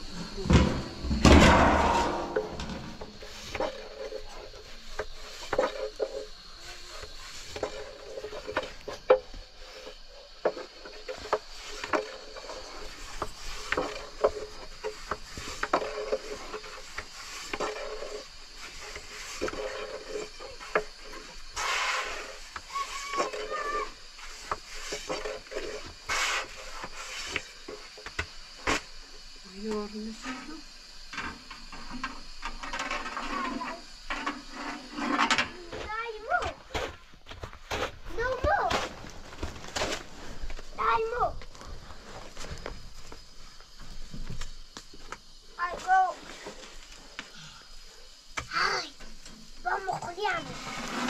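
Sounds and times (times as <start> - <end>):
rubbing or scraping: 11.1 - 27.8, 32.6 - 35.6, 50.2 - 51.0.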